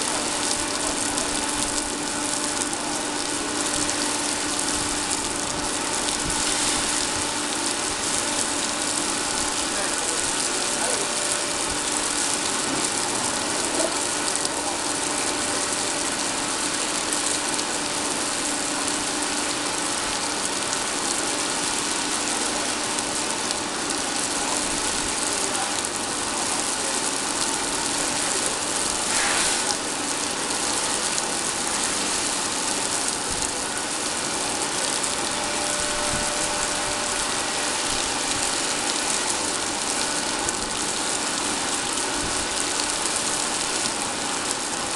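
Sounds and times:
oil rig machinery hiss and hum: 0.0s - 44.9s.

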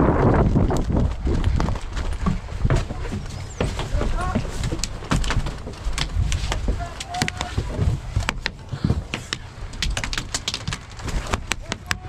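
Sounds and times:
low rumbling movement noise: 0.0s - 12.0s
faint voices: 2.6s - 12.0s.

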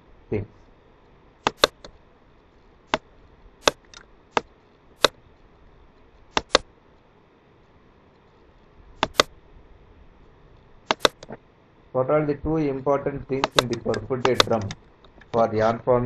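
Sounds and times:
computer mouse clicking: 1.4s - 2.0s, 3.6s - 5.2s, 6.3s - 6.7s, 9.0s - 9.3s, 10.9s - 11.4s, 13.4s - 15.4s.

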